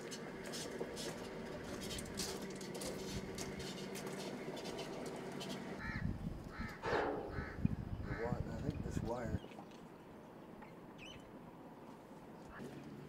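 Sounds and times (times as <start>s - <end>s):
bird calling: 10.6s - 11.3s.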